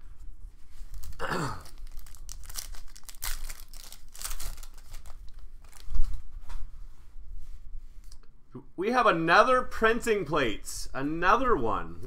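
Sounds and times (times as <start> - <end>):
cards rustling: 0.7 - 6.2
foil wrapper crinkling and tearing: 0.8 - 6.2.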